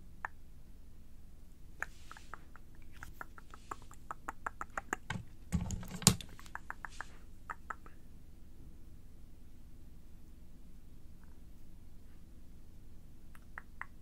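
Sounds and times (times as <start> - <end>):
wet mouth clicks: 1.8 - 5.1, 6.3 - 7.9, 13.3 - 14.0.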